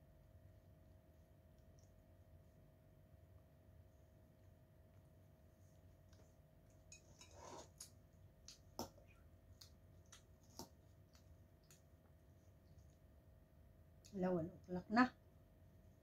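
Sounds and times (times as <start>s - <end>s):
fork scraping bowl: 6.9s - 7.9s.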